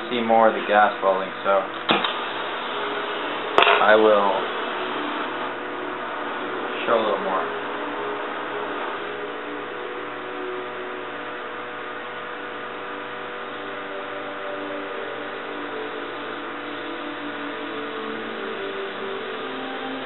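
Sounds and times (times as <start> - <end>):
welding torch hissing: 0.2 - 10.1.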